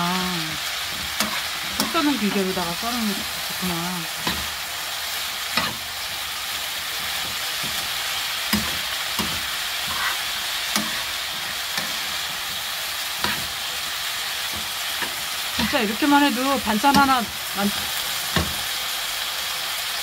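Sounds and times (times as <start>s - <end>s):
vegetables sizzling in oil: 0.0s - 20.0s
metal utensil knocking pan: 8.5s - 11.0s, 16.8s - 17.3s, 18.3s - 18.6s.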